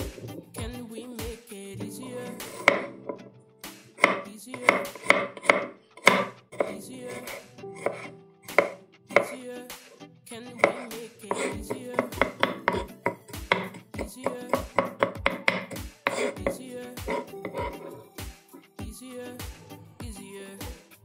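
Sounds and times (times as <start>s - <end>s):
knife chopping on cutting board: 2.4s - 2.9s, 4.0s - 9.4s, 10.6s - 18.0s.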